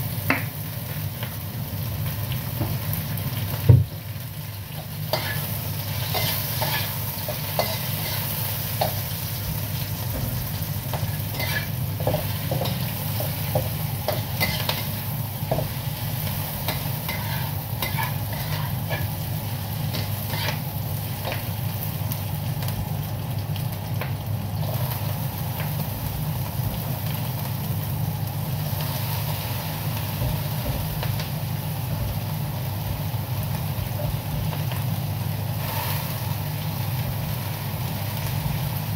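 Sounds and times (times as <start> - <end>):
vegetables sizzling in oil: 0.0 - 38.9
spatula scraping wok: 5.1 - 21.5.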